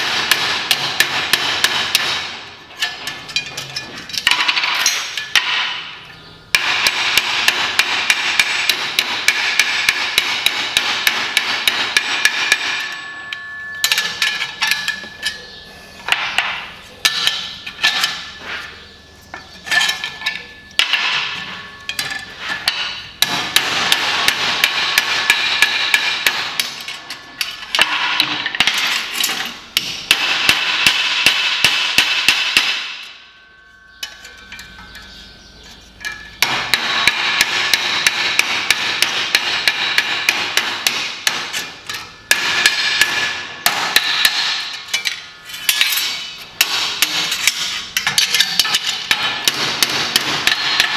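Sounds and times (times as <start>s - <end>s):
hammer striking ringing sheet steel: 6.6s - 15.5s, 16.1s - 35.2s.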